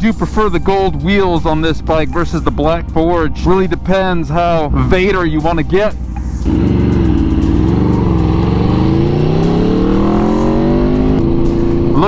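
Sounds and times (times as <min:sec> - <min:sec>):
motorcycle engine revving: 0:06.0 - 0:12.0.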